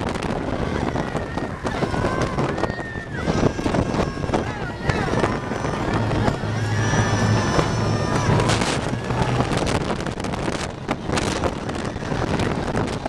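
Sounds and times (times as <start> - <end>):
high steady whine: 0.0 - 13.0
roller coaster wheels rumbling: 0.0 - 13.0
wind buffeting microphone: 0.0 - 13.0
riders screaming: 0.3 - 9.9.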